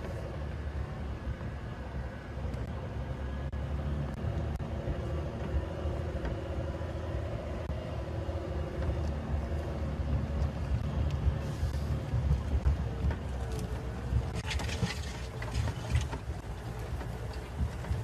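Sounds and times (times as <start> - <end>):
vehicle engine low rumble: 0.0 - 18.0.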